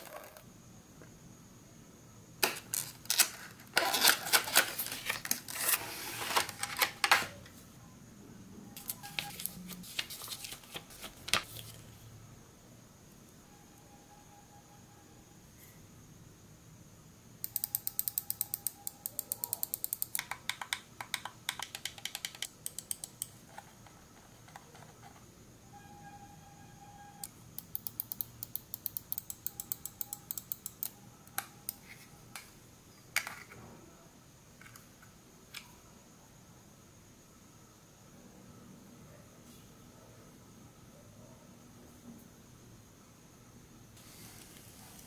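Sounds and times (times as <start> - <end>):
mouse clicking: 17.4 - 23.4, 27.6 - 31.8.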